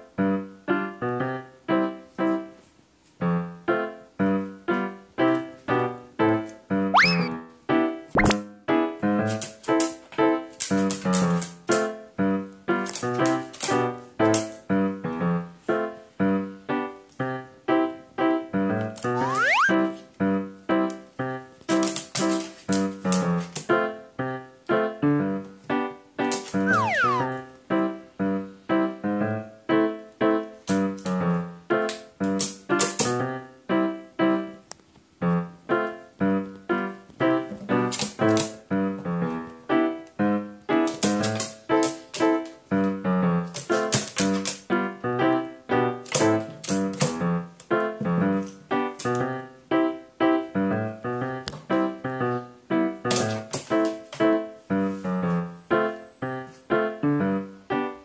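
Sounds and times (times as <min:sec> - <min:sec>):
bouncy keyboard melody: 0:07.0 - 0:07.5, 0:19.1 - 0:19.9, 0:26.7 - 0:27.5.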